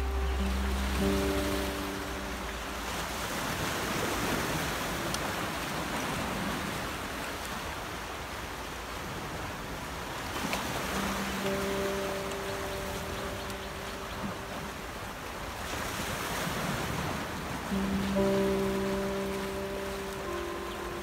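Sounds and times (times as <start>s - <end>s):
soft background music: 0.0s - 5.1s, 10.6s - 15.8s, 17.1s - 21.0s
surf washing against rocks: 0.0s - 21.0s.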